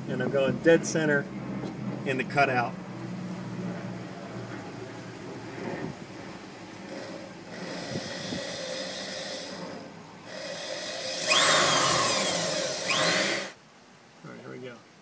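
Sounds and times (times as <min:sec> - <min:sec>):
electric drill boring metal: 0:06.7 - 0:13.6.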